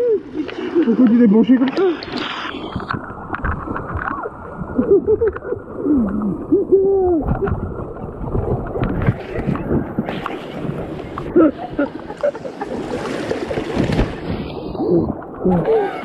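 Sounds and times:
muffled river water splashing: 0.0 - 16.0.

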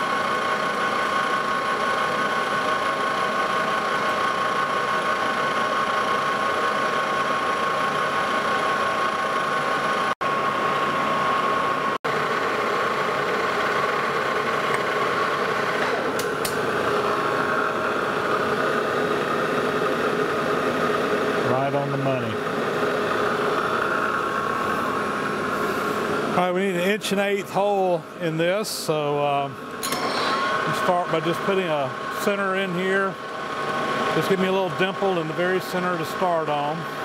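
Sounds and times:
lathe running with whine: 0.0 - 37.0.

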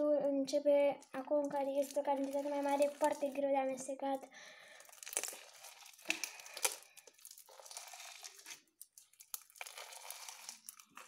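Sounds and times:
slime crackling and tearing: 1.1 - 3.6, 4.8 - 11.0.

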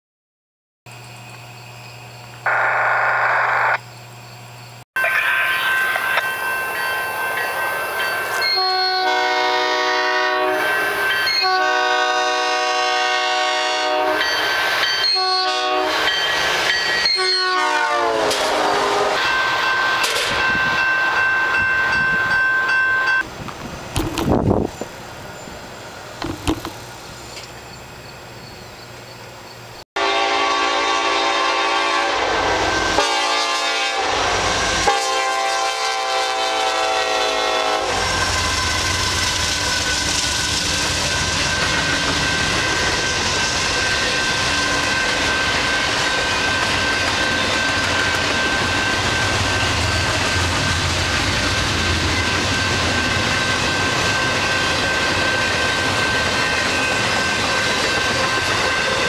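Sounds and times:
rumble of passing train cars: 0.9 - 59.0
train horn blasts: 8.4 - 14.4, 15.0 - 16.2, 17.0 - 19.4, 30.0 - 40.1.

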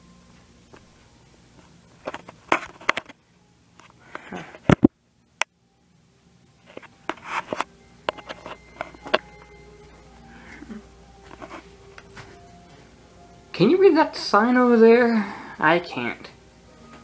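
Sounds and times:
footsteps: 10.7 - 12.9.

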